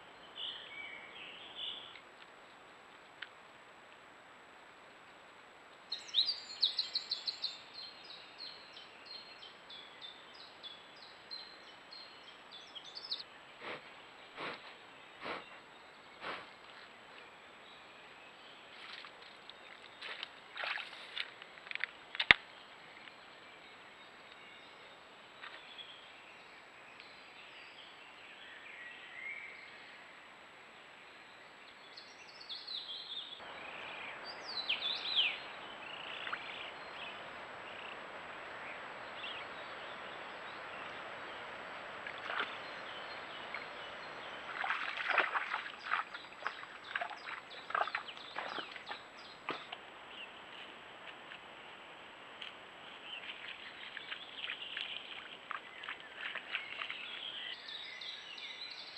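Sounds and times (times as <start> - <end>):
deer walking through wet grass: 13.6 - 17.4, 18.4 - 23.2, 33.4 - 57.7
falling bird calls: 33.4 - 50.4.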